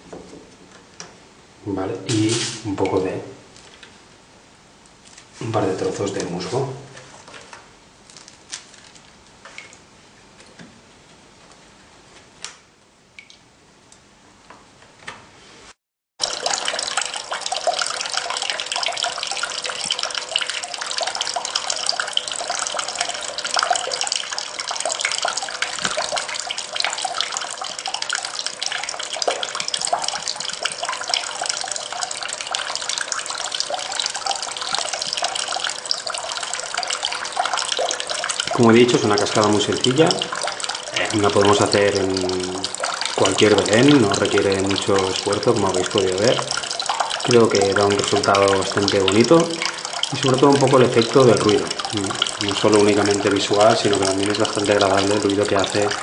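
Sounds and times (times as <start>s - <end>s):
tabletop waterfall splashing: 2.1s - 2.9s, 16.2s - 56.0s.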